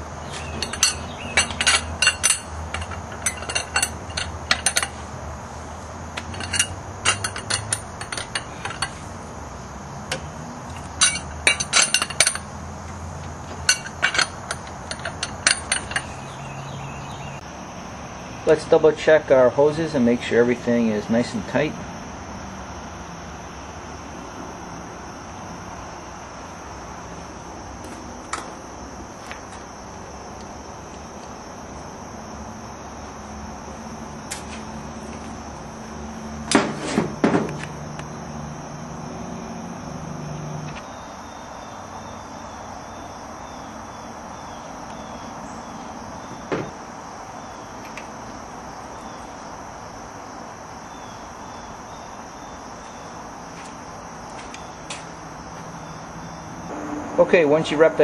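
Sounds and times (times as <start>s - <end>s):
tools clicking and knocking: 0.5s - 5.0s, 6.2s - 9.0s, 10.1s - 12.5s, 13.5s - 16.2s
steady high-pitched tone: 56.7s - 58.0s.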